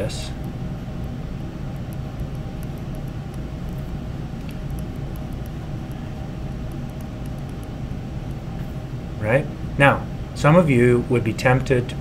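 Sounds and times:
air handling hum: 0:00.0 - 0:12.0
faint high ticks: 0:00.4 - 0:06.0, 0:06.7 - 0:08.4.

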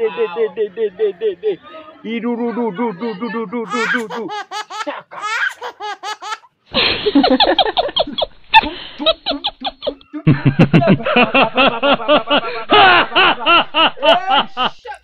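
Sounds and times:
man's rapid rhythmic syllables: 0:00.0 - 0:04.4.

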